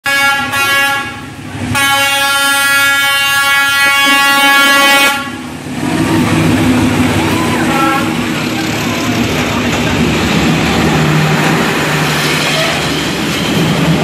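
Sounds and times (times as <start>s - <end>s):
locomotive horn blasts: 0.0s - 5.5s, 7.6s - 8.3s
locomotive running rumble: 0.1s - 14.0s.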